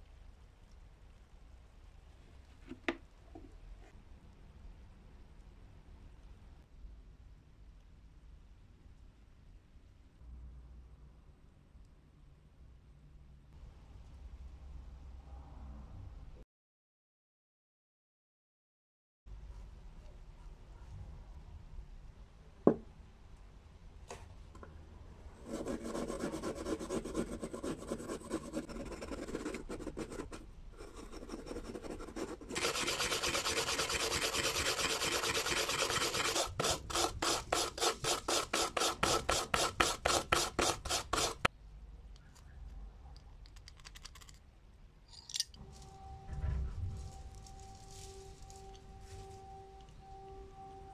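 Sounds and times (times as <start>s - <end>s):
steel wool scrubbing metal: 30.9s - 41.5s.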